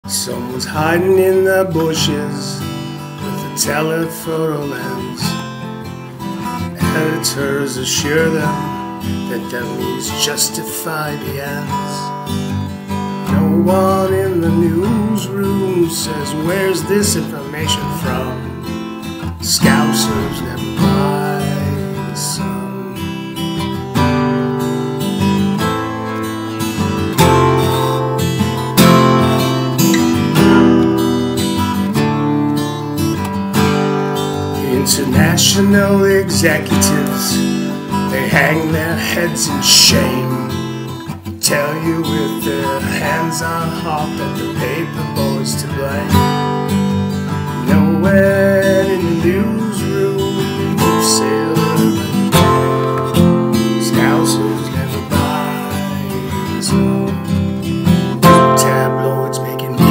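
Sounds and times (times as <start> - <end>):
acoustic guitar strumming chords: 0.0 - 59.9
man singing: 0.0 - 59.9.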